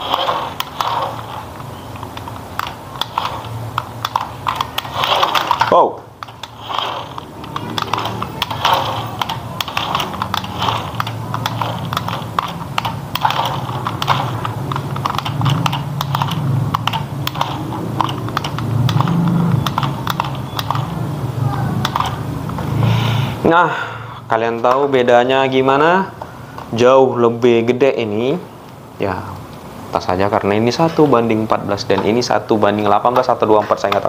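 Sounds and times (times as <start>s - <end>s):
rapid small clicks: 0.0s - 21.0s, 21.8s - 22.6s
toy truck electric motor humming: 0.0s - 23.0s.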